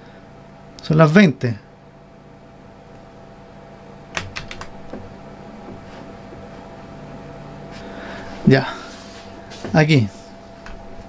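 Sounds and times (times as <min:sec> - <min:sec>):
faint electrical hum: 0:00.0 - 0:11.0
computer keyboard clicks: 0:04.2 - 0:04.8.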